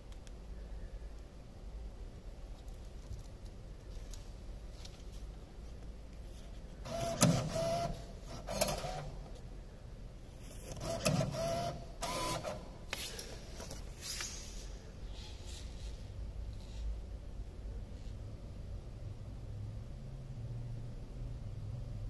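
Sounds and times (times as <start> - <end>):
motor whirring with clicks: 10.7 - 12.6.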